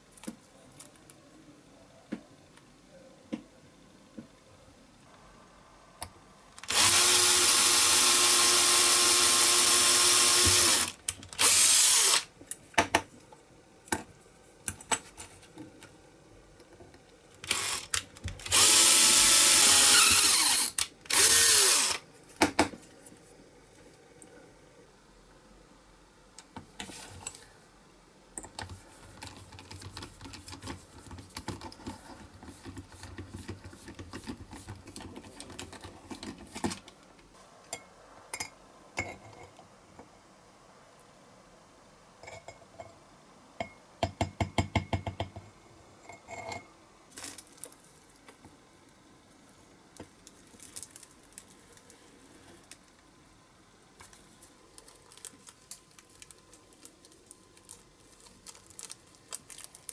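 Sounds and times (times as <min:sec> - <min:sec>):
miniature drill boring plastic: 0:06.6 - 0:12.3, 0:17.4 - 0:22.0.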